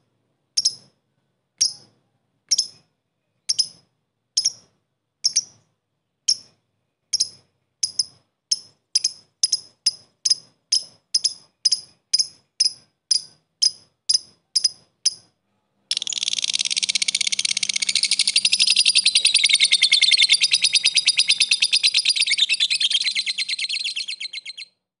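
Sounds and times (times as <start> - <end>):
lovebird chirping: 2.5 - 3.8, 4.4 - 5.6, 6.3 - 24.8
bird chattering trill: 7.1 - 15.3, 15.9 - 24.8.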